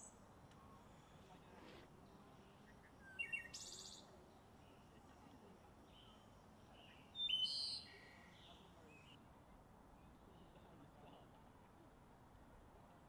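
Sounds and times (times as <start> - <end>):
songbirds chirping: 0.0 - 5.0, 5.7 - 9.2
faint outdoor background hiss: 0.0 - 13.0.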